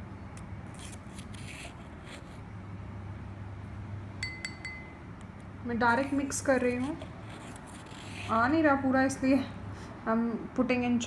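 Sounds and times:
ringing clinks: 4.2 - 5.0
plastic spoon scraping in bowl: 6.6 - 8.6.

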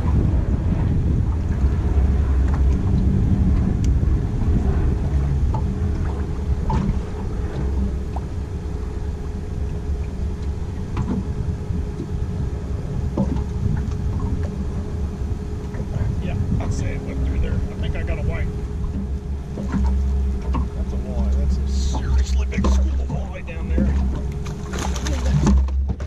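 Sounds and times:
boat motor rumbling: 0.0 - 26.0
faint hum: 0.0 - 26.0
light ticks: 10.3 - 11.2.

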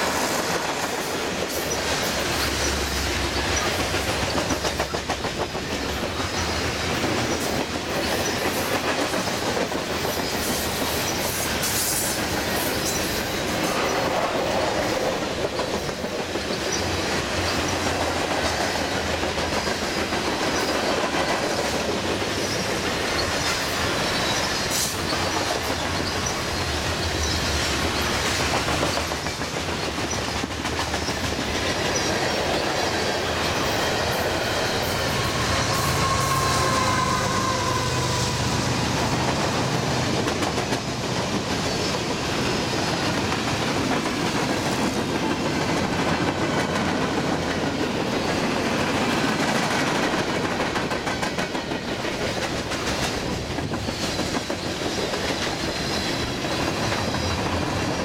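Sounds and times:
wheels clicking over rail joints: 0.0 - 36.2, 39.0 - 58.0
freight train rolling past: 0.0 - 58.0
thin wheel squeal: 35.5 - 38.3.

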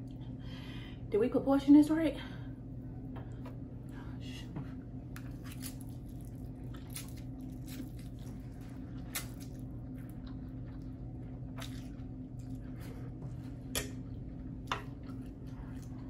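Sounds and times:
chewing smacks: 5.1 - 16.0.

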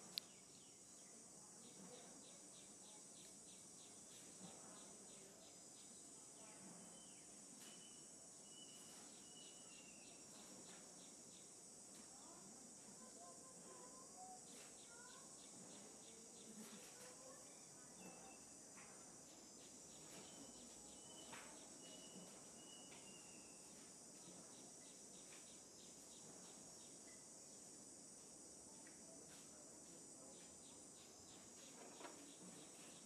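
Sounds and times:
high-pitched insect drone: 19.2 - 28.2.

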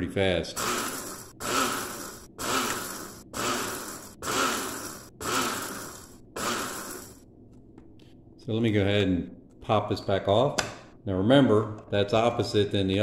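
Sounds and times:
coffee grinder pulsing: 0.6 - 7.2.

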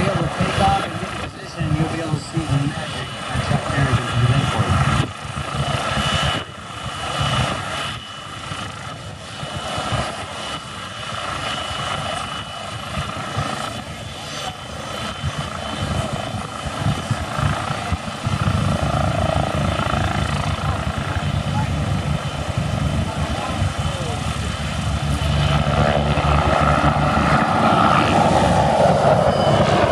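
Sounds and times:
helicopter turbine whine: 0.0 - 29.9
helicopter rotor thudding: 14.9 - 29.9.

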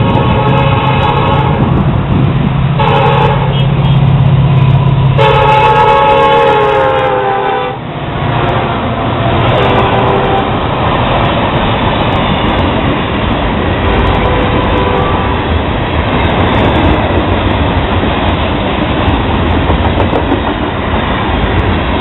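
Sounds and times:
locomotive air horn blasts: 0.0 - 1.7, 2.8 - 4.1, 5.2 - 10.6, 13.9 - 15.5
diesel engine rumble: 0.0 - 6.1
passing train cars: 0.0 - 22.0.

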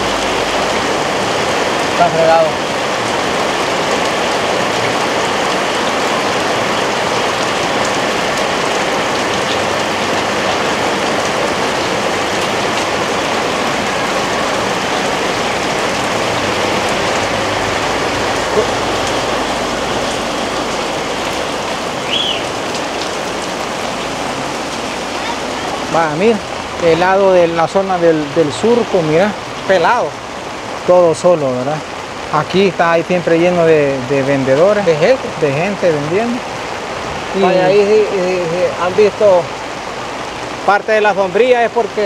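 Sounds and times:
heavy rain falling: 0.0 - 42.0
high rising chirp: 22.0 - 22.6.

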